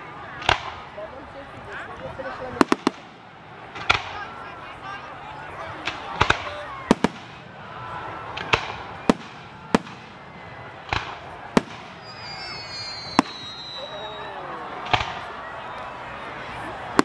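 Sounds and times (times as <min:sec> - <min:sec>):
spectators' voices: 0:00.0 - 0:17.0
fireworks bangs: 0:02.4 - 0:04.4, 0:05.7 - 0:15.5, 0:16.7 - 0:17.0
high falling whistle: 0:12.0 - 0:14.5.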